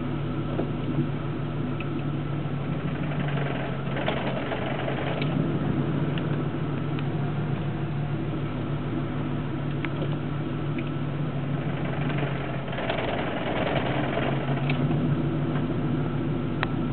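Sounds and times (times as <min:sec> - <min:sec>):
car engine idling: 0:00.0 - 0:16.9
transmission rattle: 0:02.7 - 0:07.4, 0:09.6 - 0:15.8.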